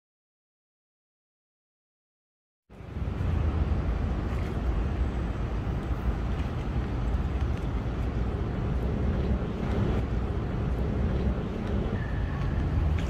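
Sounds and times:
city background noise: 0:02.7 - 0:13.0
wind noise on microphone: 0:02.7 - 0:13.0.

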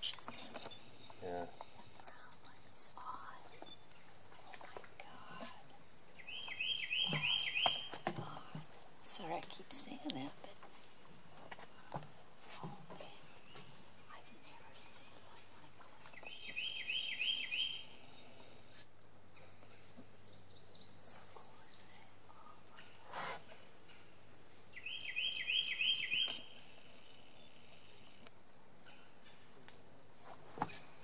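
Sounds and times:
background noise: 0:00.0 - 0:31.0
faint bird calls: 0:06.2 - 0:09.2, 0:19.3 - 0:29.5.

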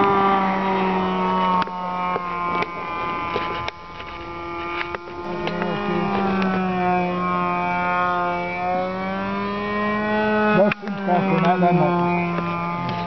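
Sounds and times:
model plane engine buzzing: 0:00.0 - 0:13.0
sharp clicks: 0:01.5 - 0:06.6, 0:10.6 - 0:11.7.

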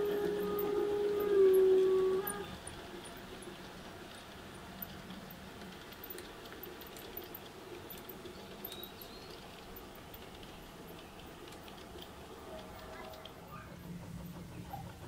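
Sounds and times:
low running hum: 0:00.0 - 0:15.0
model train rolling and clicking: 0:00.0 - 0:15.0.

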